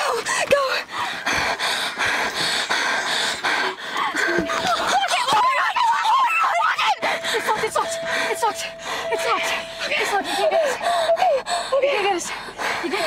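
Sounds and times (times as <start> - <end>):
women crying and shrieking: 4.2 - 13.0
steady single-pitch tone: 4.3 - 5.0, 6.8 - 11.9
women gasping: 7.0 - 13.0.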